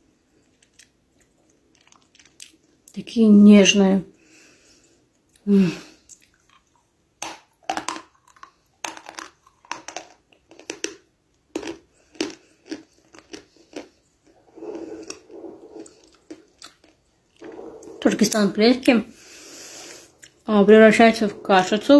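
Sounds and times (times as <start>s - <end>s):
chewing dry clay crunches: 0.4s - 2.6s, 6.1s - 19.0s.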